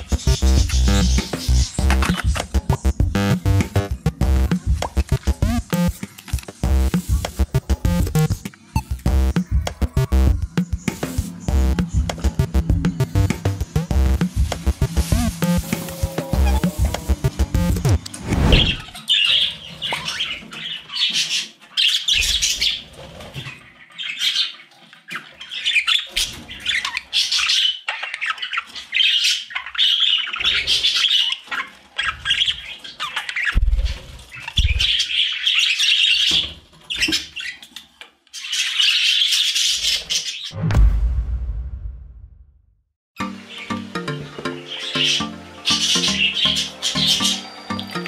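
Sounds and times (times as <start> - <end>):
budgerigars chattering and squawking: 0.0 - 3.6, 19.0 - 37.7, 38.4 - 40.5, 44.7 - 47.5.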